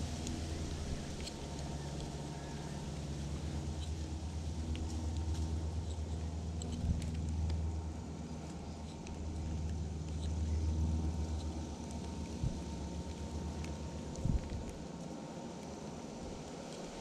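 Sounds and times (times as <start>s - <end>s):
wind buffeting microphone: 14.2s - 14.8s.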